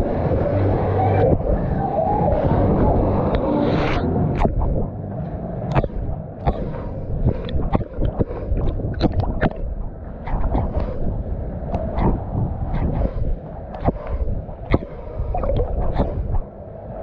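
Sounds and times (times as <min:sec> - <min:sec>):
sharp splashes and clicks: 0:05.7 - 0:11.0, 0:13.7 - 0:16.4
pool water sloshing and gurgling: 0:05.7 - 0:11.1.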